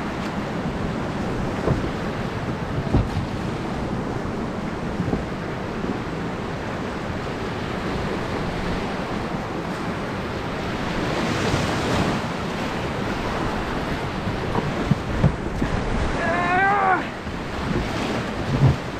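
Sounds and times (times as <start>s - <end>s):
river water rushing: 0.0s - 18.9s
wind buffeting microphone: 0.0s - 18.9s.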